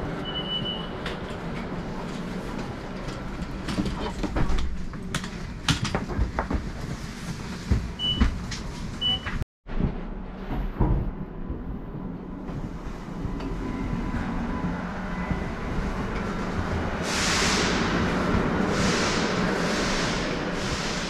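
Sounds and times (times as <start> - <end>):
train carriage rumble: 0.0 - 21.0
people moving and knocking: 1.2 - 11.8.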